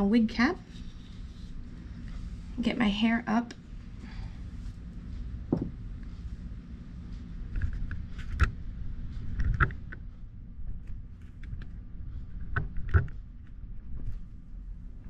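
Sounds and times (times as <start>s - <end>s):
steady low rumble: 0.0s - 15.0s
soft rustles of hair and satin: 0.4s - 2.6s.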